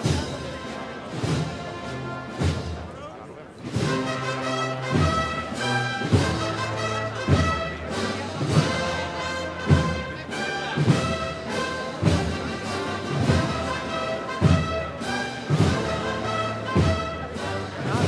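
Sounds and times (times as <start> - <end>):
brass band playing a march: 0.0 - 18.0
heavy drum beat: 4.9 - 18.0.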